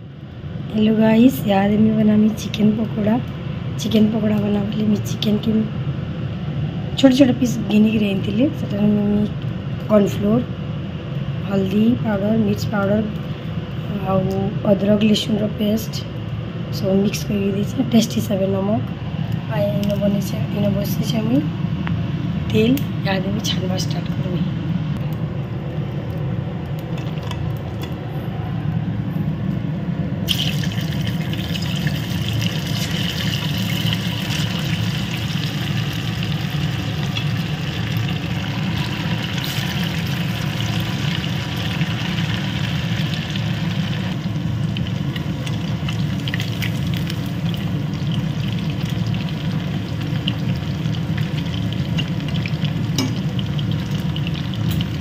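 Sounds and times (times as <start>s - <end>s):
steady low hum: 0.0s - 55.0s
food deep-frying in hot oil: 30.2s - 55.0s.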